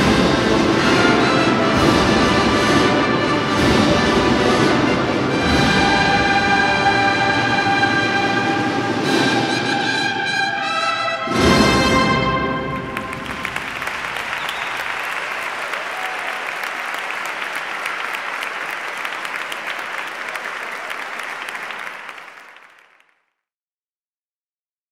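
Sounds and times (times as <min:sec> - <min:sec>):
brass and drum band playing: 0:00.0 - 0:14.4
audience applauding: 0:12.5 - 0:23.3.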